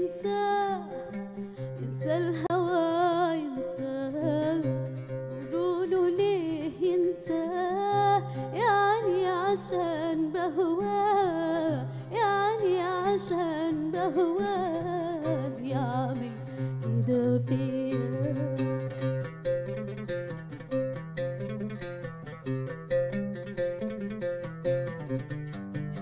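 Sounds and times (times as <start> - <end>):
woman singing: 0.0 - 19.1
oud: 0.0 - 26.0.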